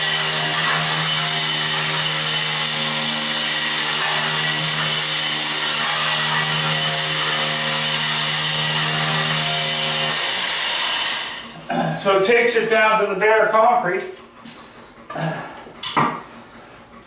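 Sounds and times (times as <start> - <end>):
blade scraping concrete floor: 0.0 - 11.5
floor scraper motor hum: 0.0 - 11.7.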